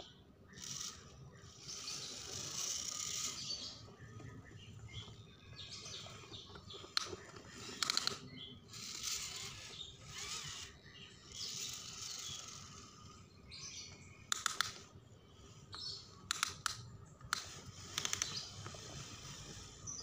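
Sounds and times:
birds chirping: 0.0s - 20.0s
sharp clicks and knocks: 6.5s - 8.3s, 14.3s - 14.9s, 15.7s - 18.8s.

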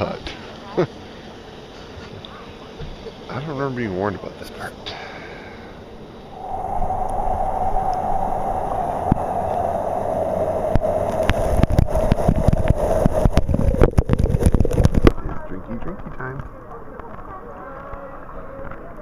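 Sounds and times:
falling water spray rushing: 6.3s - 15.2s.

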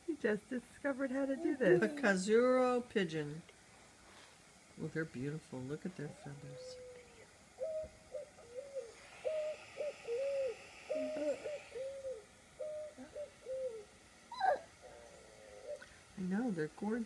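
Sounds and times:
pigeons cooing through speaker: 6.1s - 16.0s.

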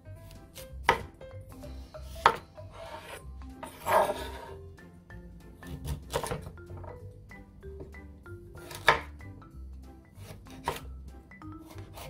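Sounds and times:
soft background music: 0.0s - 12.0s
knife rasping through potato: 2.0s - 4.6s, 10.2s - 10.9s, 11.6s - 12.0s
knife knocking on cutting board: 2.2s - 2.4s.

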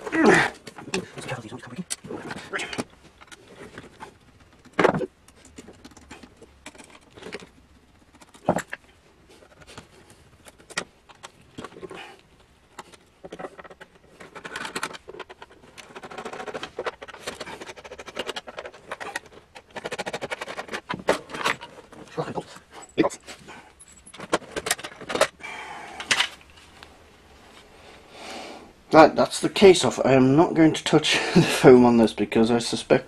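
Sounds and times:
screwdriver scraping and clicking: 12.7s - 21.9s.

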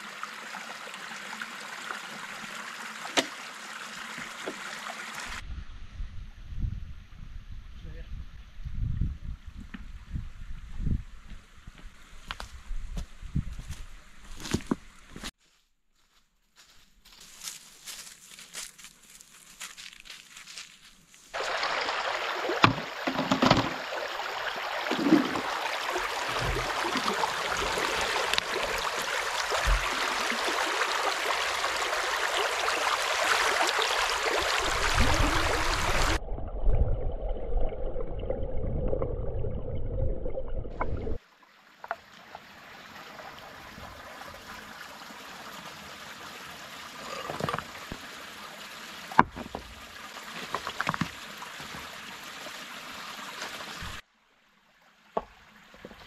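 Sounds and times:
stream trickle: 0.0s - 5.4s, 17.4s - 56.0s
stream water rushing and splashing: 0.0s - 5.4s, 21.3s - 36.2s, 41.0s - 56.0s.

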